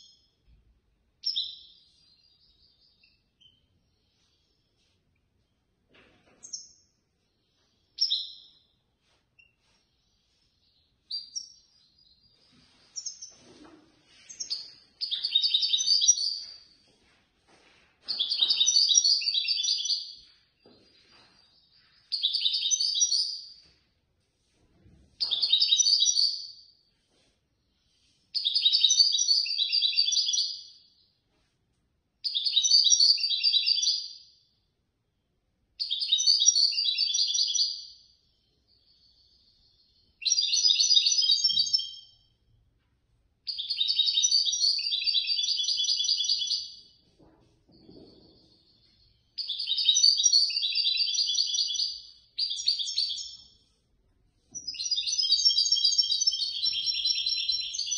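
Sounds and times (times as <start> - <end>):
bird twittering: 49.4 - 53.5.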